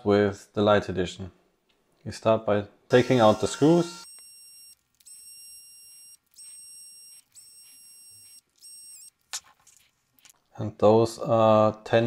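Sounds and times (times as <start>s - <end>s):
electric screwdriver motor whining: 2.9s - 9.1s.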